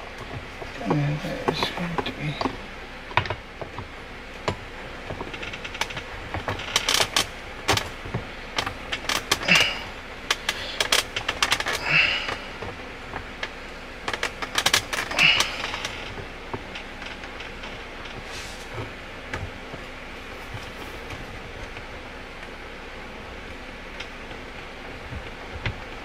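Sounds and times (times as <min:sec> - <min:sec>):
gear shifter clicks and clacks: 0:00.0 - 0:26.0
short scraping: 0:18.2 - 0:18.7.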